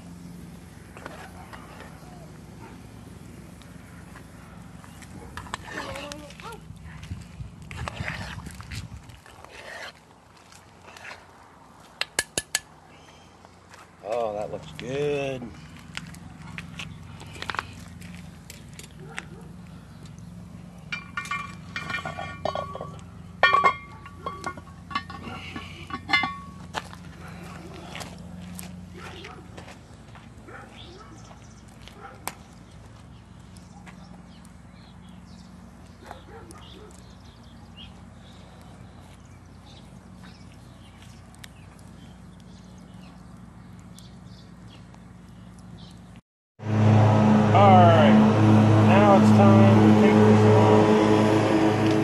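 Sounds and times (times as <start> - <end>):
distant lawn mower humming: 0.0 - 6.8, 14.4 - 46.0, 46.6 - 52.0
wood fire popping: 0.4 - 12.8, 15.5 - 30.5, 31.3 - 46.2
metal ladle and lid clinking on pot: 20.9 - 26.6.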